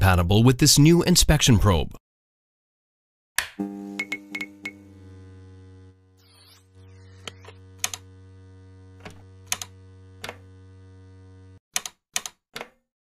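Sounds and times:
low synthesizer drone: 4.6 - 11.6
sharp clicks: 7.2 - 8.1, 9.0 - 10.4.

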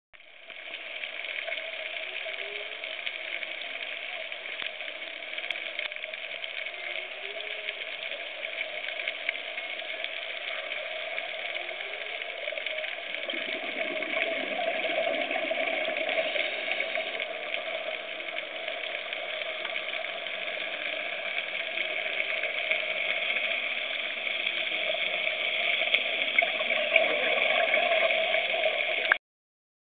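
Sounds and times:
steady underwater hum: 0.2 - 29.2
underwater hiss: 6.9 - 29.2.

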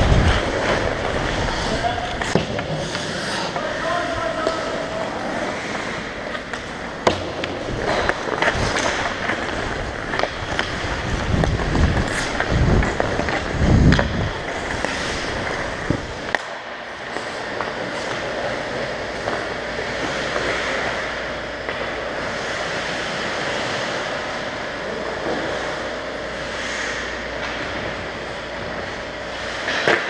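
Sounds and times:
heavy low rumbling: 0.0 - 2.8
skate blades scraping ice: 0.0 - 21.1
stick and puck clacks: 0.2 - 22.0, 29.4 - 30.0.

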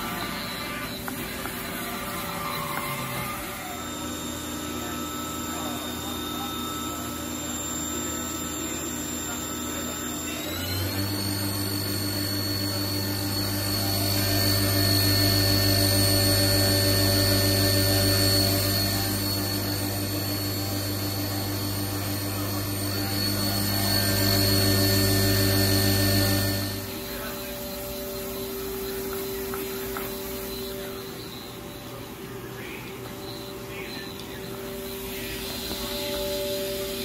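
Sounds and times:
mill spindle whine: 0.0 - 37.0
low hum: 12.2 - 37.0.

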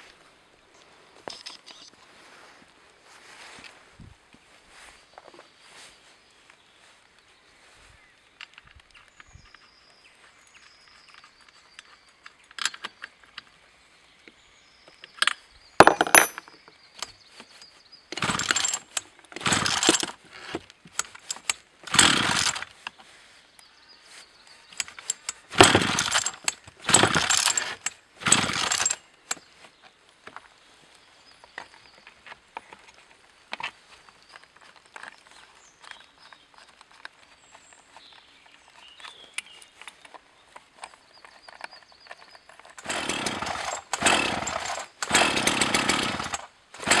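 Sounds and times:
chainsaw recoil starter pulls: 15.8 - 16.5, 18.1 - 22.9, 24.8 - 29.4, 42.5 - 47.0.

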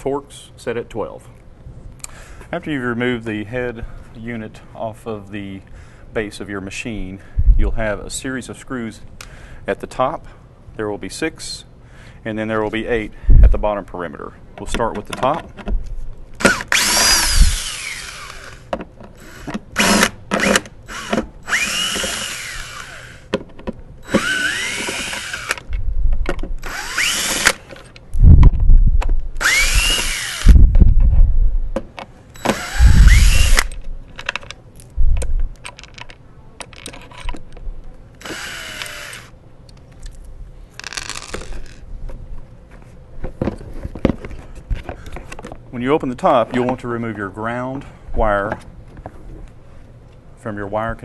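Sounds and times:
cordless drill whining: 16.4 - 23.3, 24.0 - 25.6, 26.6 - 27.6, 29.4 - 30.6, 32.4 - 33.7, 38.2 - 39.3
heavy low thumps: 30.4 - 31.8, 32.7 - 33.6.

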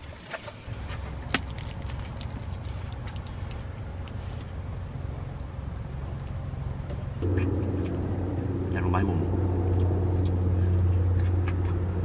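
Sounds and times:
low rumble: 0.7 - 12.0
sauce sizzling and bubbling: 0.8 - 7.2.

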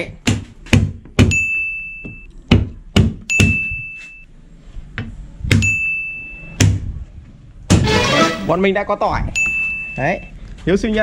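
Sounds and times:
high ringing note: 7.9 - 8.6.

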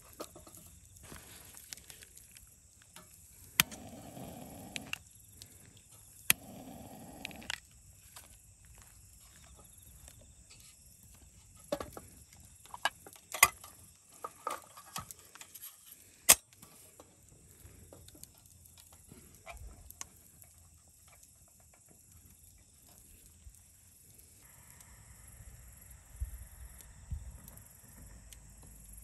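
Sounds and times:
metal lantern clicks and clanks: 3.0 - 4.0
steady high hiss: 22.9 - 29.0.

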